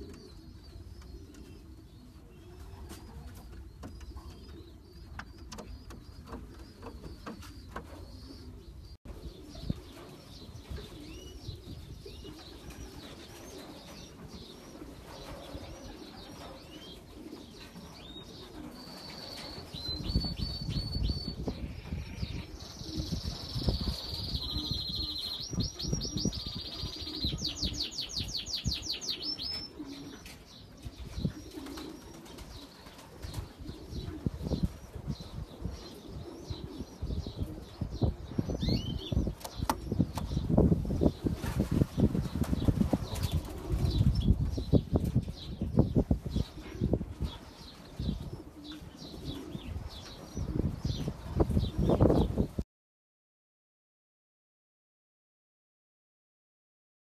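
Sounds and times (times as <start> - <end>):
pigeons cooing: 0.0 - 20.4, 21.2 - 52.5
wing flaps and rustling: 39.2 - 45.4.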